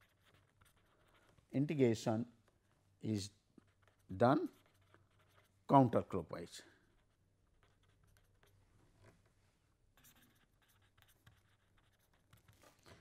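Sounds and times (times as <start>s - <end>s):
pen scratching on paper: 0.0s - 1.4s, 3.6s - 5.6s, 6.9s - 8.6s, 9.9s - 13.0s.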